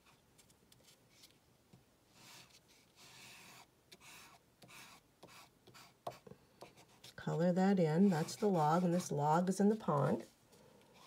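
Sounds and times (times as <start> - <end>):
crayon scratching on paper: 2.2 - 7.2, 7.8 - 10.3.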